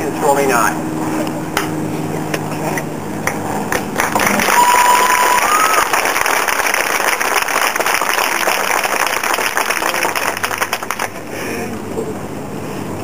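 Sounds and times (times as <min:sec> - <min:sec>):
audience applauding: 0:03.7 - 0:11.2.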